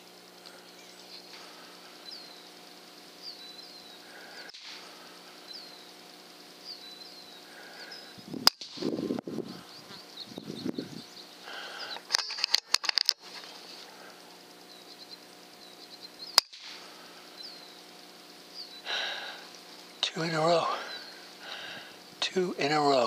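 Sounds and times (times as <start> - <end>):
small birds chirping: 0.0 - 23.0
air rifle shot: 4.5 - 4.8, 8.4 - 8.9, 16.4 - 16.8
dull noise burst: 13.1 - 22.6.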